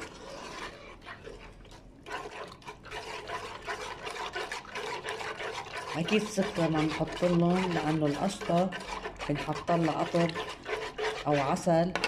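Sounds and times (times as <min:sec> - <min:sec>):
liquid sloshing in a pan: 0:00.0 - 0:12.0
spoon scraping and clicking on pan: 0:10.0 - 0:11.2.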